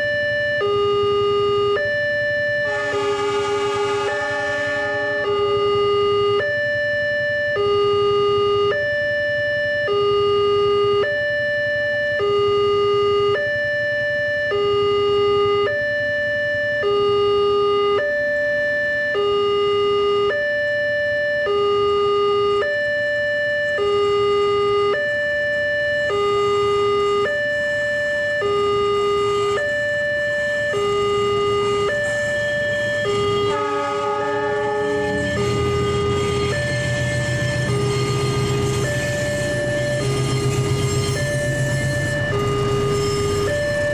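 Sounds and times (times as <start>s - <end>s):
level crossing two-note alarm: 0.0s - 43.9s.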